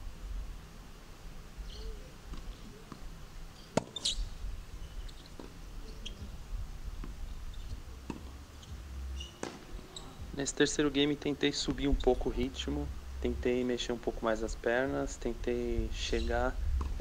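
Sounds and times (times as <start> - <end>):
low wind rumble: 0.0 - 17.0
brief high squeak: 3.9 - 4.2, 9.2 - 10.2.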